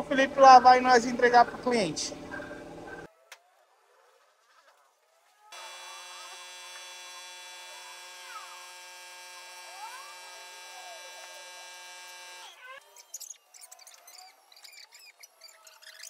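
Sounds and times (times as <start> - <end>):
electrical hum and whine: 5.6 - 12.6.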